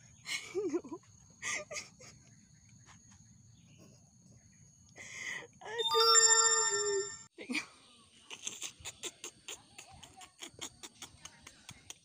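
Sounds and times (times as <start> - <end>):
thin steady insect tone: 0.0 - 5.8.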